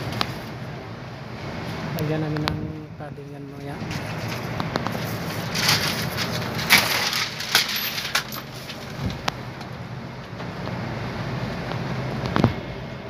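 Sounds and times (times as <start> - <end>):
low machine hum: 0.0 - 13.0
foil insulation crinkling: 3.8 - 9.4.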